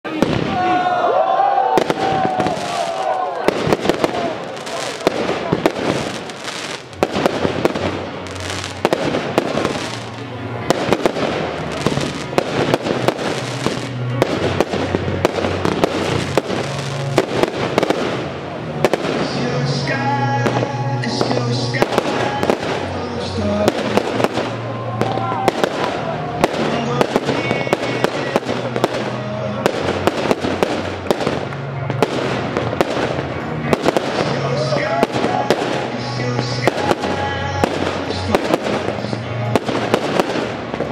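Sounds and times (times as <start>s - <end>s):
fireworks bursting and crackling: 0.0s - 0.8s, 1.5s - 40.9s
background music: 0.0s - 40.9s
firework shells bursting: 1.8s - 19.2s.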